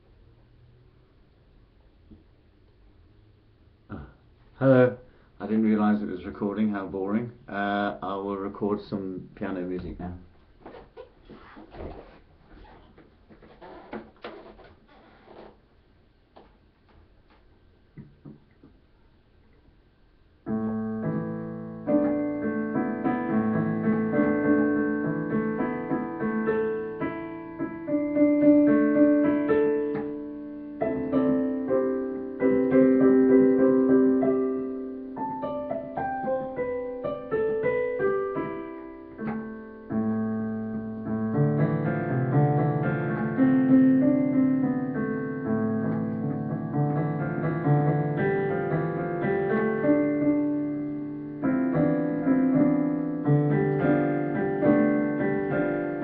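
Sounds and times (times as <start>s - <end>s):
digital piano chords: 20.4s - 56.0s.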